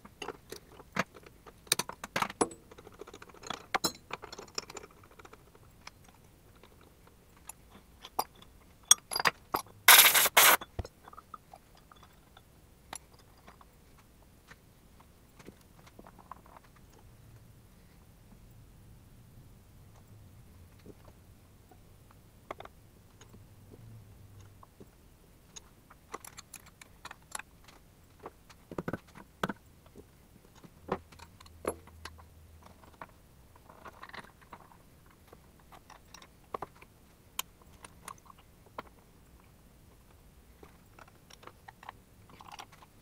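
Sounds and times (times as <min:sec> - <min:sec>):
faint low hum: 0:02.5 - 0:43.0
metal tools clinking: 0:08.2 - 0:10.7.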